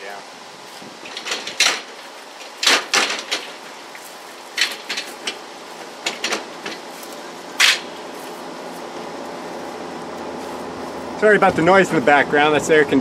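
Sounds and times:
metal dolly clanking and rattling: 1.0s - 8.0s.

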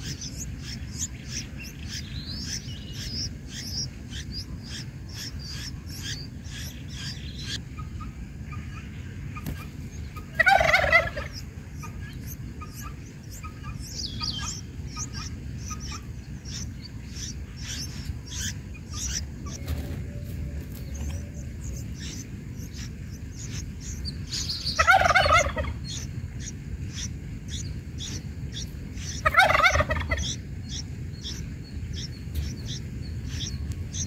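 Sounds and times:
loud rapid bird warbling call: 0.0s - 34.0s
nestlings begging chirps: 0.0s - 34.0s
steady low rumble: 0.0s - 34.0s.

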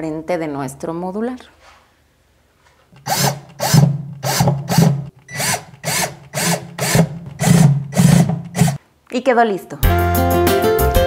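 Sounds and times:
cordless drill driving screws into wood: 3.0s - 8.8s.

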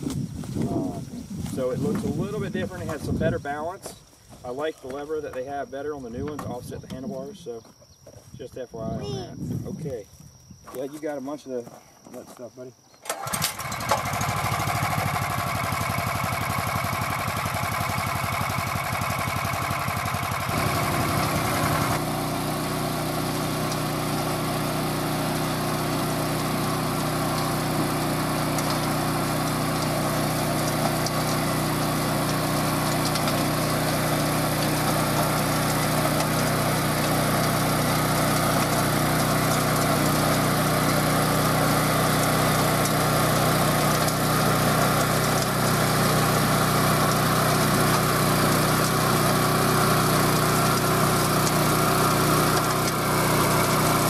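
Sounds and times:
tiller working through soil: 0.0s - 7.0s, 13.0s - 54.0s
tractor engine running: 13.1s - 54.0s.

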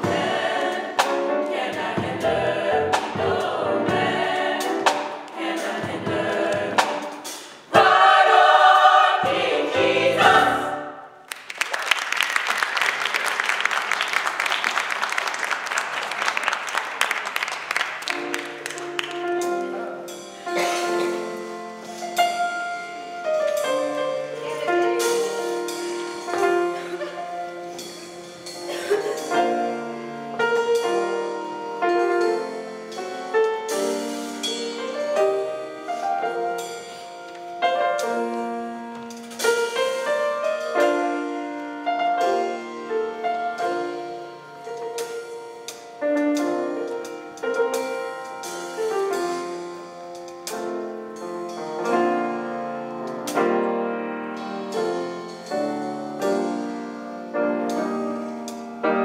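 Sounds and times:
audience applause: 11.2s - 19.3s
solo piano chords: 18.1s - 59.0s.

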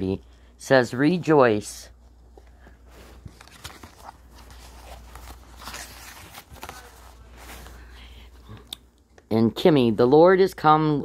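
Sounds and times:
paper card rustling: 2.2s - 8.0s.

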